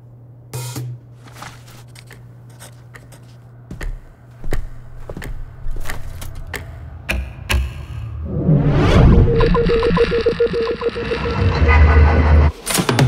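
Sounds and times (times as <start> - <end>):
paper rustling: 1.1 - 3.4
paper thumping into metal wastebasket: 1.2 - 3.3
hard-soled footsteps: 1.2 - 7.7.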